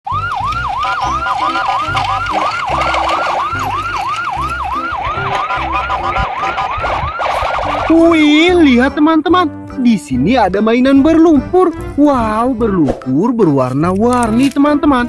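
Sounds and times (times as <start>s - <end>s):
siren-style wail: 0.1s - 8.5s
thumping bass line: 0.1s - 8.9s.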